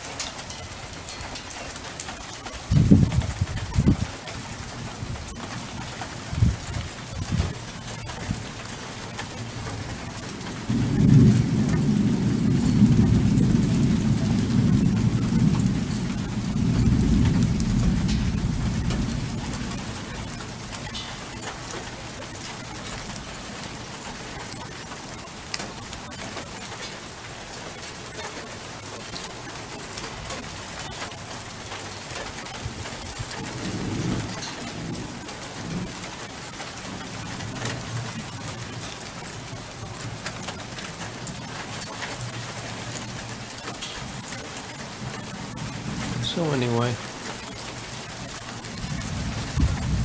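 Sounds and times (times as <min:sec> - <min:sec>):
steady rain: 0:00.0 - 0:50.0
thunder rolling: 0:02.6 - 0:08.7, 0:09.4 - 0:24.1, 0:32.6 - 0:41.7, 0:48.2 - 0:50.0.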